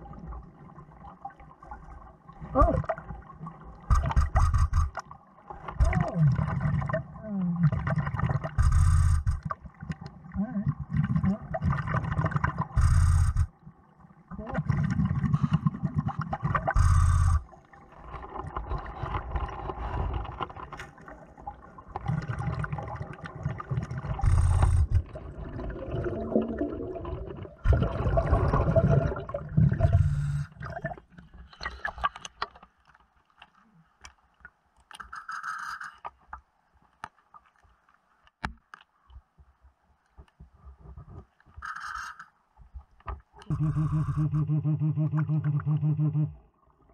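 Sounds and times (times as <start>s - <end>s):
bubbling exhalation underwater: 5.8s - 9.4s, 10.3s - 13.4s, 22.0s - 31.0s, 43.4s - 46.4s
light scrapes and clicks: 34.8s - 38.9s, 40.1s - 42.4s.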